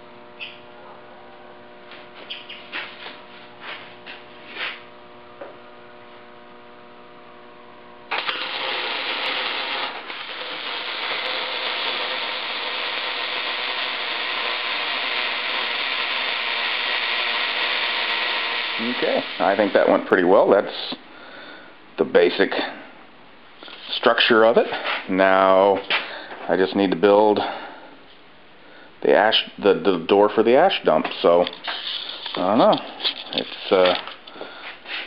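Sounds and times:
electrical hum: 0:00.0 - 0:35.0
arc welding hiss: 0:08.1 - 0:20.0.

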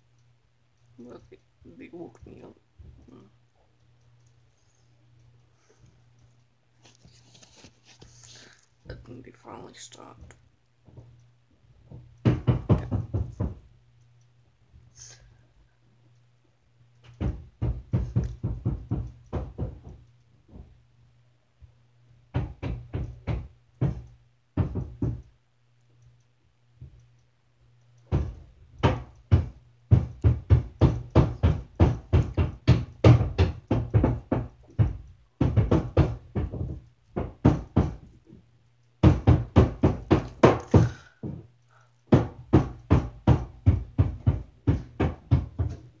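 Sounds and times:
muffled hammering on roof: 0:11.8 - 0:13.7, 0:17.0 - 0:20.8, 0:22.3 - 0:25.3, 0:28.0 - 0:38.4, 0:39.0 - 0:46.0.

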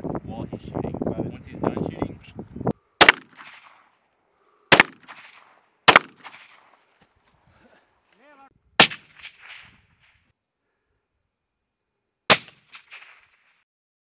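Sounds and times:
gunshots with echo: 0:03.0 - 0:03.8, 0:04.7 - 0:06.7, 0:08.8 - 0:10.2.

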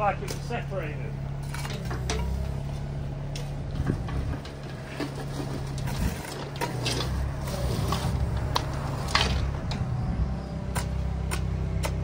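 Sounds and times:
engine running at low revs: 0:00.0 - 0:12.0
knocks and scrapes: 0:01.4 - 0:09.9.

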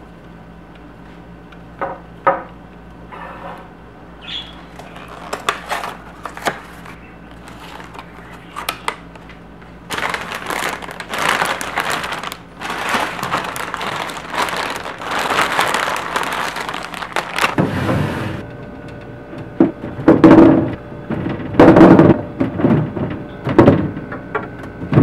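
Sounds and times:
plastic bags crinkling: 0:04.4 - 0:17.6.

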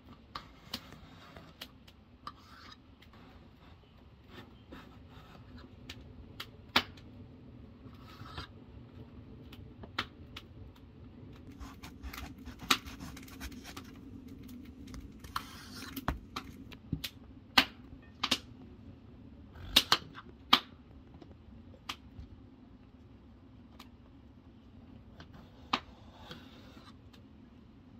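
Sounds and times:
knife scraping through eggplant: 0:11.5 - 0:14.0.

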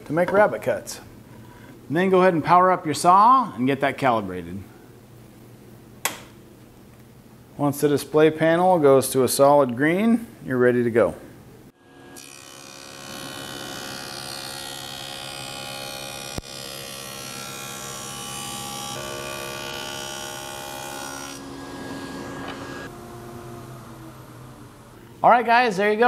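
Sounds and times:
table saw whine: 0:11.8 - 0:25.2.

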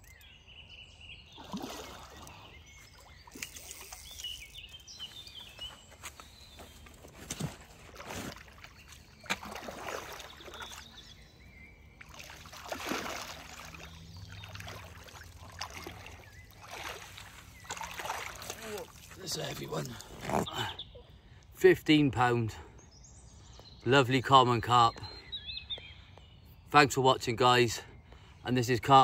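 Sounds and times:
fish thrashing and splashing water: 0:01.4 - 0:04.4, 0:07.6 - 0:11.0, 0:12.0 - 0:19.2.

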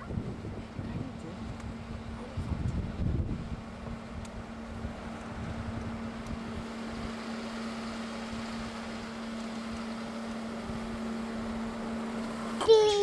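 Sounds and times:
wind rumble on microphone: 0:00.0 - 0:07.2
steady mechanical hum: 0:00.0 - 0:13.0.

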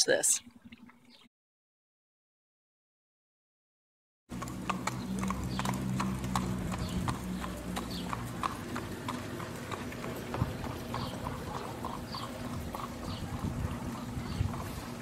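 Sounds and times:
horse hooves clip-clopping on asphalt: 0:04.3 - 0:15.0.

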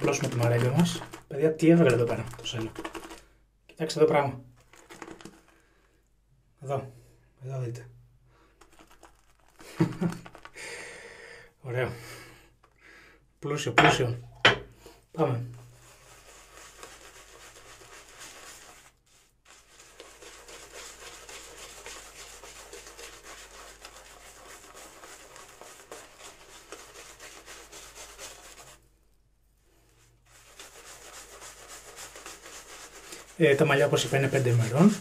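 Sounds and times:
shaving brush rubbing on scalp: 0:00.0 - 0:03.2, 0:08.6 - 0:10.6, 0:15.4 - 0:28.8, 0:29.9 - 0:35.0.

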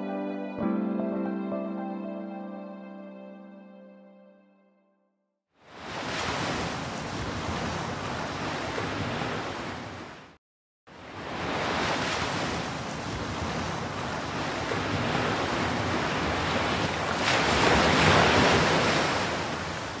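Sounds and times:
wind: 0:05.6 - 0:20.0
sea waves washing: 0:11.2 - 0:20.0.

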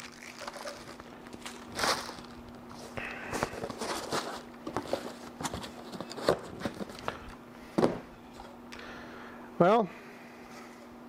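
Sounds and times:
packing material rustling: 0:00.0 - 0:07.1.

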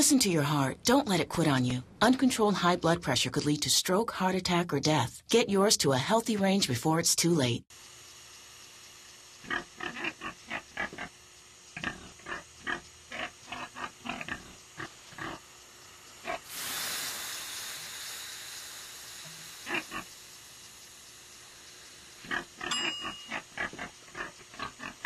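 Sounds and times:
pig grunting: 0:09.5 - 0:11.1, 0:11.8 - 0:15.4, 0:22.2 - 0:25.0
steam hissing: 0:14.8 - 0:22.6.

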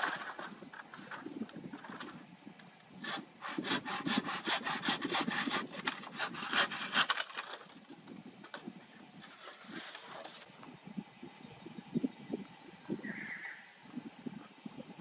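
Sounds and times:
hand saw cutting log: 0:03.0 - 0:07.8.

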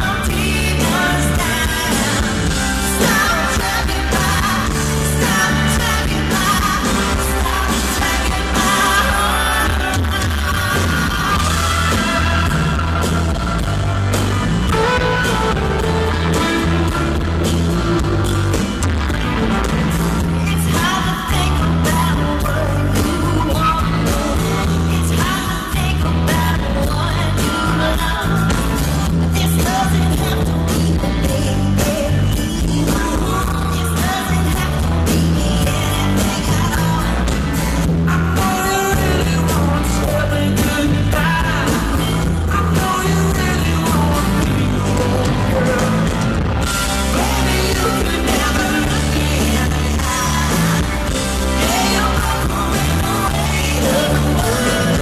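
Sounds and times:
man and woman singing: 0:00.0 - 0:17.3, 0:20.2 - 0:55.0
live rock band: 0:00.0 - 0:55.0.

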